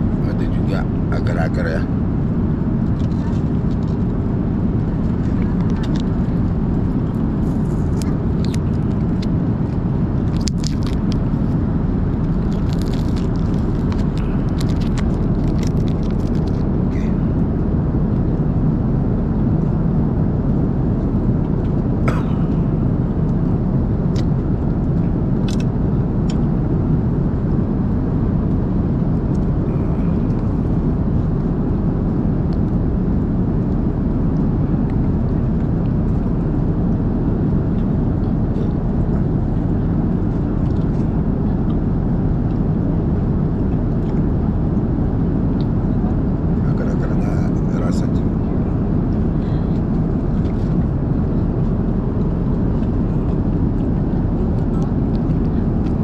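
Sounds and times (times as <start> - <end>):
airliner cabin roar: 0.0 - 56.0
food packaging crinkles: 12.3 - 16.6.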